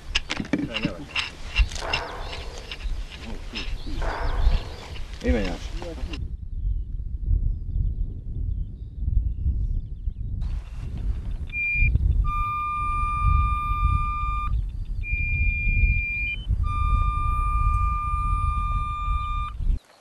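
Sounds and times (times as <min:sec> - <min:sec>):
steady low rumble: 0:00.0 - 0:19.8
metal detector high tones: 0:00.7 - 0:05.1, 0:11.5 - 0:19.6.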